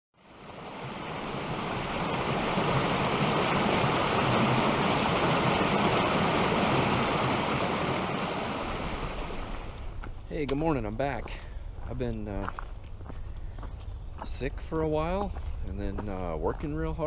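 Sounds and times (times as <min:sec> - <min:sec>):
creek rushing and splashing: 0:00.2 - 0:10.1.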